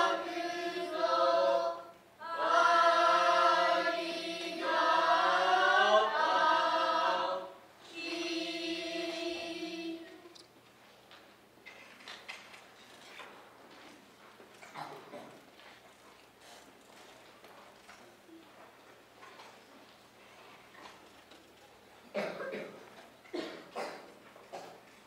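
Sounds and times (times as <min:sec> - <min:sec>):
children chanting in unison: 0:00.0 - 0:10.1.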